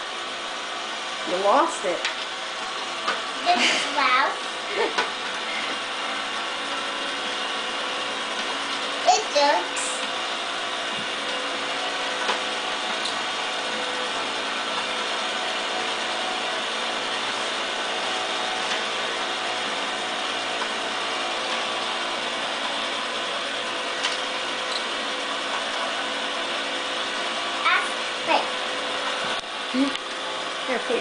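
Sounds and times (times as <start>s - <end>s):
toy motor whirring and clattering: 8.0s - 10.2s.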